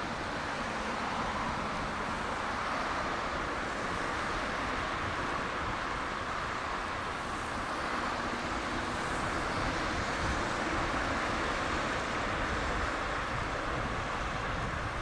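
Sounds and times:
wind: 0.0 - 15.0.

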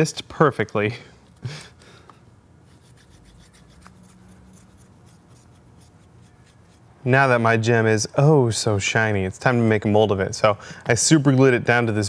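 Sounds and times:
plastic rubbing on paper: 2.6 - 6.9.

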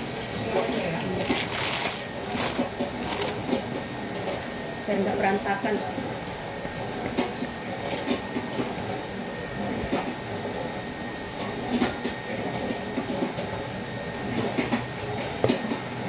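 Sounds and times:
plastic rustling: 0.5 - 3.8.

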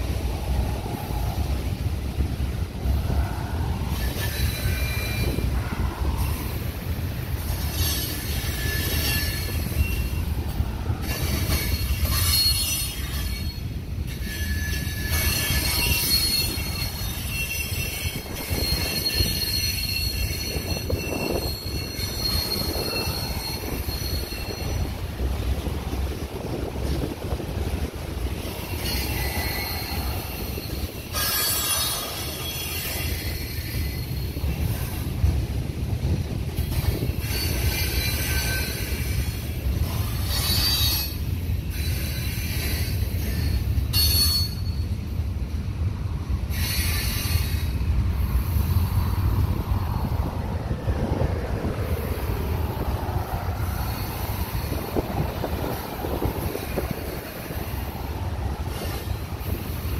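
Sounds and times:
freight cars rumbling over bridge: 0.0 - 59.9
wheel squeal: 3.9 - 6.5, 7.5 - 10.4, 11.0 - 25.0, 28.5 - 35.1, 36.7 - 45.0, 46.5 - 47.8.

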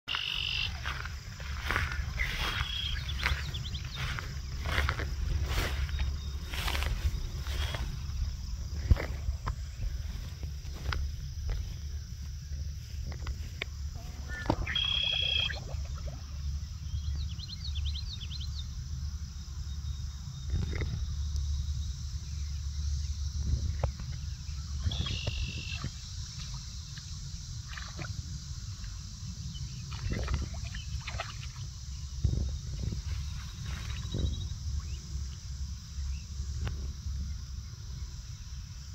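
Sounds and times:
short high chirping calls: 0.1 - 0.9, 1.7 - 4.2, 14.0 - 15.8
wind rumble on microphone: 0.1 - 38.9.

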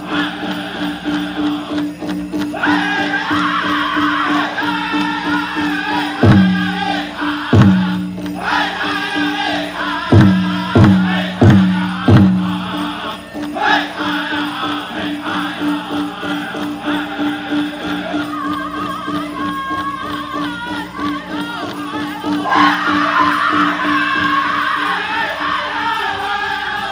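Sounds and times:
group singing in wavering voices: 0.0 - 26.9
loud drum beats: 0.2 - 13.8.

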